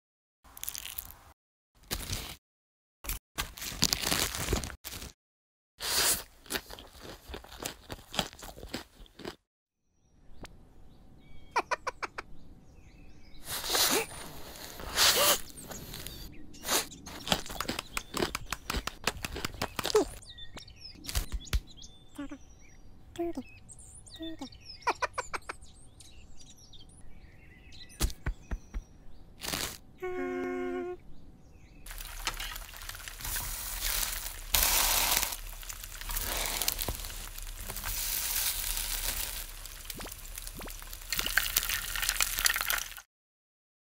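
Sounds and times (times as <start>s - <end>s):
crisp crunching bites: 0.5s - 1.2s, 1.8s - 2.4s, 3.1s - 5.2s, 5.9s - 9.4s, 17.1s - 20.2s, 29.4s - 29.8s, 31.9s - 43.0s
food sizzling in a pan: 31.9s - 43.0s.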